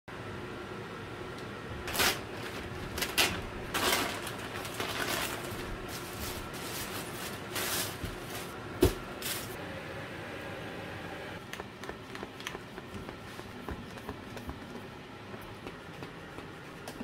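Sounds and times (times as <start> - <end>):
plastic mailer bag slit open: 1.9 - 8.6
plastic wrapping crinkling: 1.9 - 9.6.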